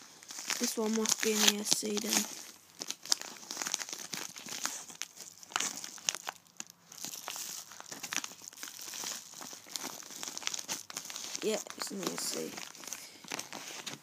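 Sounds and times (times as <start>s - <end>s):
envelope paper crinkling and tearing: 0.0s - 14.0s.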